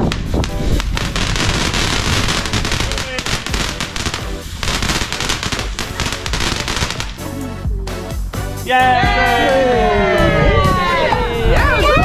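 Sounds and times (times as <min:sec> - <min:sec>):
fireworks crackling and banging: 0:00.0 - 0:07.4.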